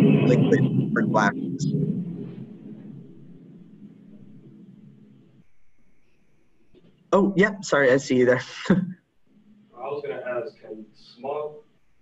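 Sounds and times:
person speaking: 0.0 - 1.7, 7.2 - 9.0
low room noise: 0.0 - 12.0.

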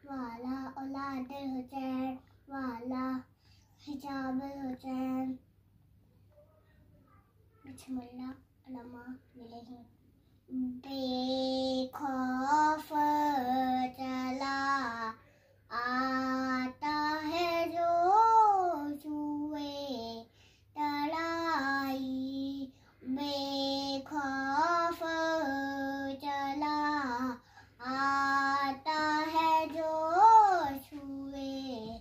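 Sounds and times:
boy chanting recitation: 0.0 - 5.4, 6.3 - 9.9, 10.5 - 32.0
breaths: 3.3 - 3.8, 15.2 - 15.7, 20.3 - 20.7, 22.7 - 23.0, 27.4 - 27.8.

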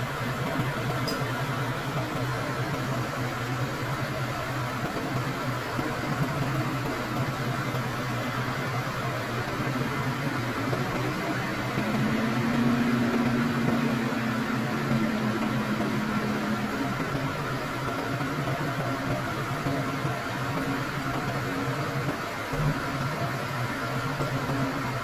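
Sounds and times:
diesel engine running: 10.7 - 18.3.

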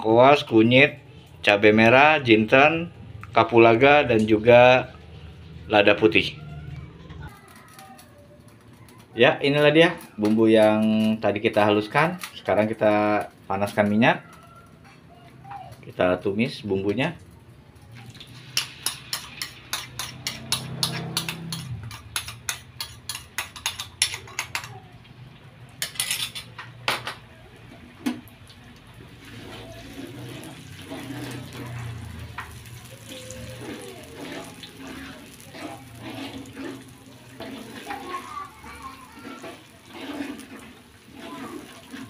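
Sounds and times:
paste sizzling in oil: 18.0 - 24.1, 29.0 - 42.0
metal spatula scraping a wok: 18.3 - 24.6, 25.8 - 26.5, 29.3 - 42.0
metal spoon clinking on bowl: 18.6 - 24.8.

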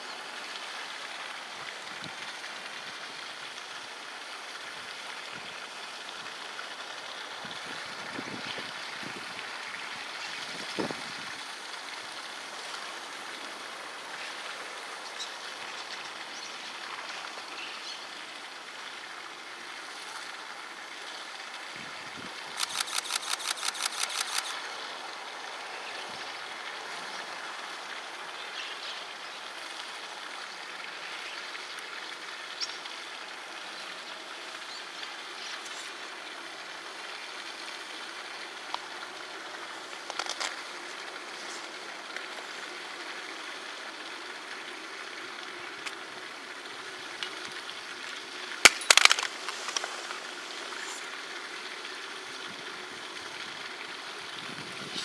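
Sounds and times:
outdoor background noise: 0.0 - 55.0
sharp clicks: 22.6 - 24.5, 48.6 - 50.0.

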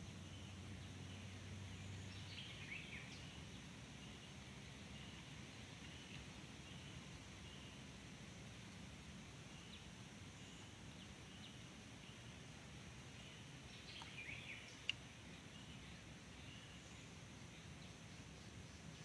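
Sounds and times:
soft high bird chirps: 13.1 - 19.0.

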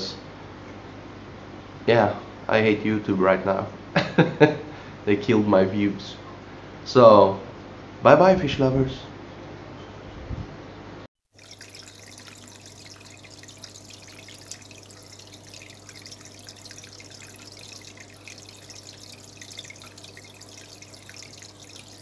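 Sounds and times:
water trickling and dripping: 11.3 - 22.0
low steady hum: 11.4 - 22.0.

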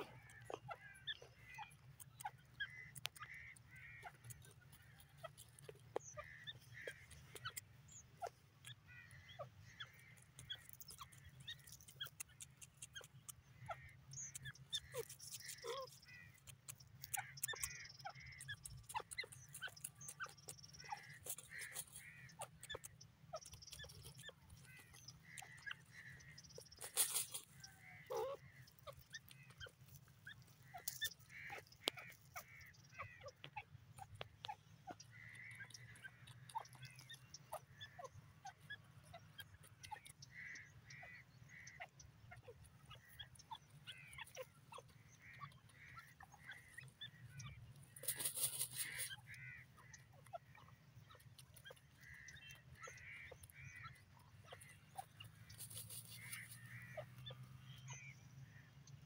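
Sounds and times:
pecking clicks in soil: 0.0 - 58.1
rustling: 26.8 - 28.6, 47.9 - 49.1, 55.5 - 56.9.

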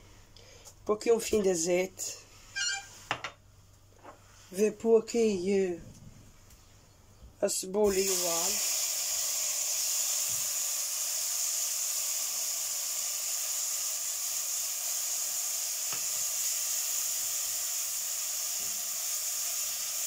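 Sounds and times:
onion and garlic sizzling in oil: 7.8 - 20.0.

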